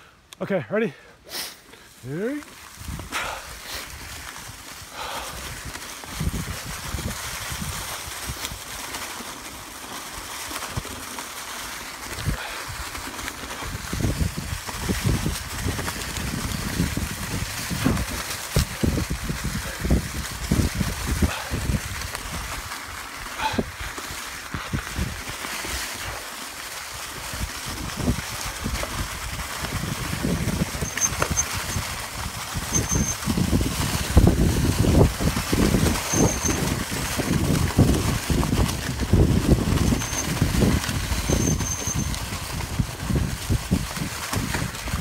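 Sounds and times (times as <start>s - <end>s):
tyres rolling through leaves: 0.0s - 45.0s
bike rattling over bumps: 2.4s - 45.0s
wind buffeting microphone: 2.7s - 8.8s, 12.1s - 23.9s, 26.9s - 45.0s
high squeaks: 30.8s - 31.9s, 32.7s - 33.2s, 36.0s - 36.6s, 39.9s - 40.4s, 41.2s - 42.2s.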